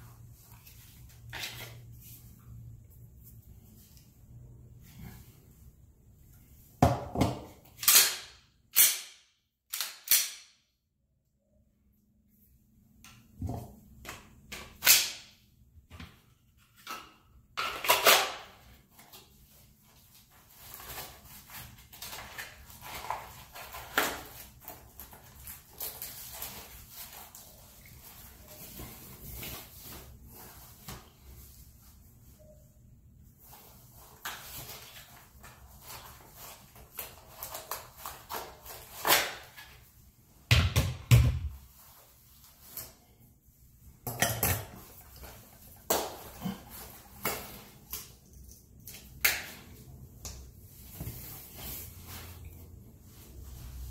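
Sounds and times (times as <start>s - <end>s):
clothing and holster rustling: 50.6s - 53.9s.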